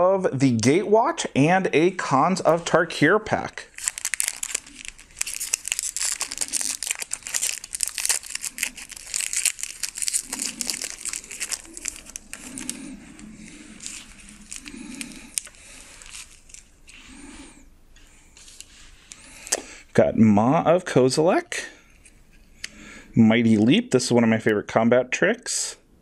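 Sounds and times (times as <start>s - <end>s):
foil wrapper crinkling and tearing: 3.7s - 17.0s.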